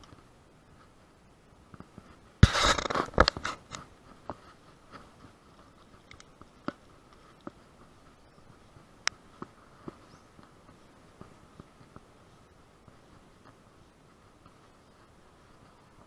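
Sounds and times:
camera handling scraping and knocking: 2.4s - 3.9s
light clicks: 5.8s - 7.6s.

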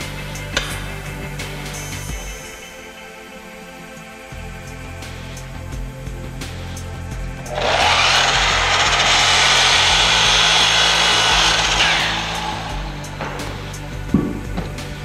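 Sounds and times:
background music: 0.0s - 15.0s
miter saw cutting wood: 7.2s - 14.0s.

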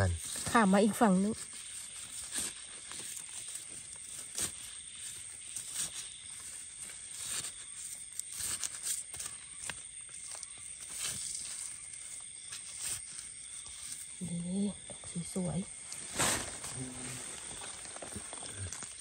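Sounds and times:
rustling leaf litter: 0.1s - 14.2s, 15.7s - 19.0s
knife scraping soil: 0.2s - 14.2s.

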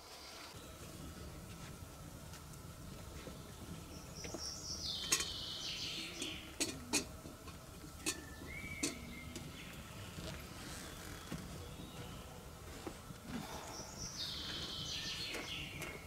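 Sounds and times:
metal cookware clinking: 5.0s - 5.4s, 6.2s - 7.1s, 8.0s - 9.1s.

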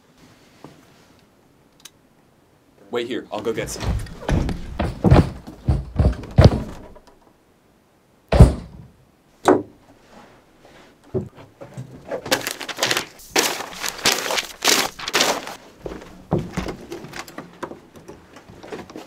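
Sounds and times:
heavy thump: 3.6s - 7.0s, 8.3s - 8.9s
papers rustling and crumpling: 12.0s - 19.0s.

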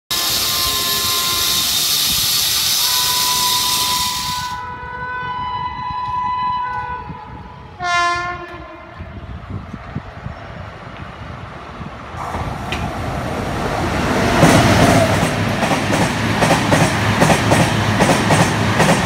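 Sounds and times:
locomotive horn blasts: 0.1s - 1.8s, 2.8s - 9.2s
steady high hiss: 0.1s - 4.6s.

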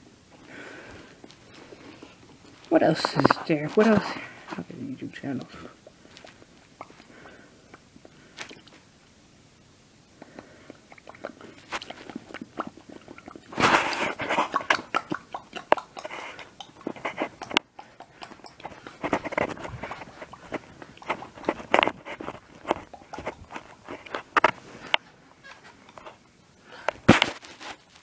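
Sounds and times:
close crackling and clicking: 5.3s - 8.9s, 10.2s - 26.2s.

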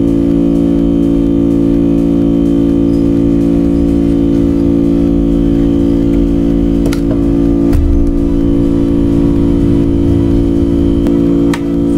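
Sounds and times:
sustained organ chords: 2.6s - 11.9s.

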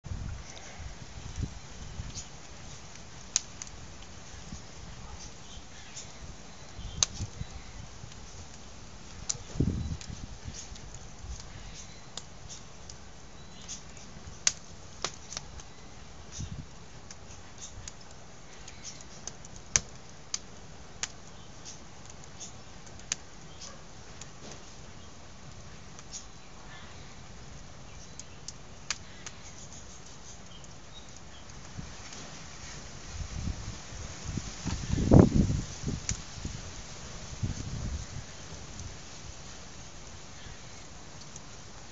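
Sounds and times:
wood fire crackling: 0.0s - 41.9s
sharp fire pops: 1.2s - 6.2s, 6.8s - 13.0s, 13.6s - 15.7s, 16.3s - 24.9s, 31.3s - 39.2s.

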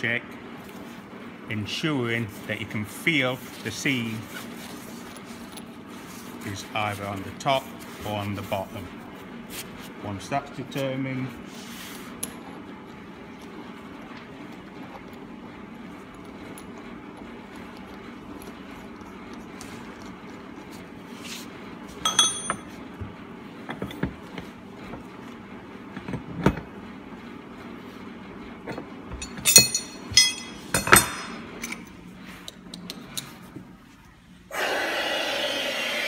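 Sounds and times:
steady low hum: 0.0s - 34.6s
metal fittings clinking on workbench: 22.0s - 22.7s, 29.2s - 31.8s.

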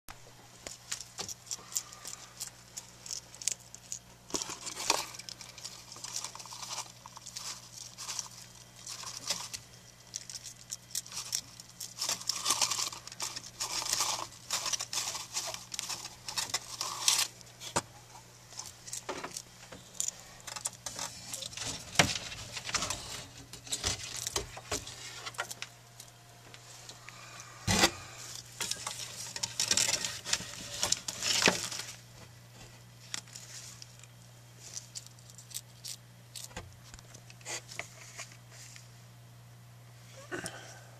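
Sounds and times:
low electrical hum: 0.1s - 40.9s
lizards scrambling over substrate: 0.7s - 17.8s, 18.5s - 25.7s, 26.6s - 32.2s.

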